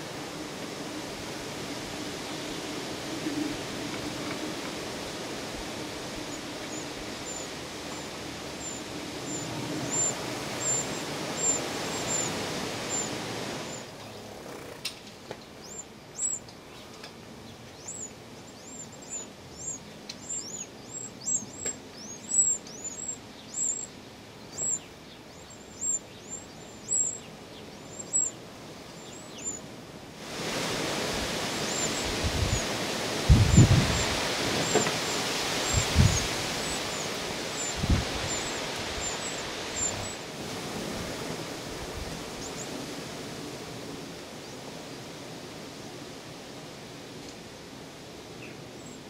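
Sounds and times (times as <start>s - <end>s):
steady hiss: 0.0s - 17.5s, 18.1s - 49.0s
nestlings chirping high: 5.9s - 14.9s, 15.5s - 29.7s, 31.6s - 40.2s.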